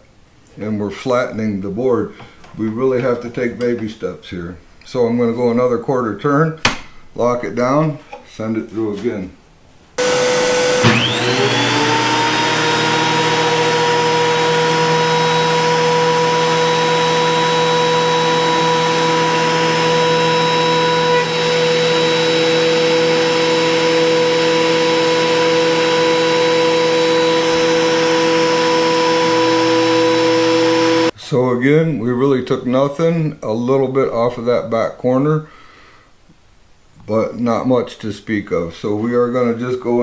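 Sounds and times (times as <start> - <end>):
thickness planer whining: 10.0 - 31.1.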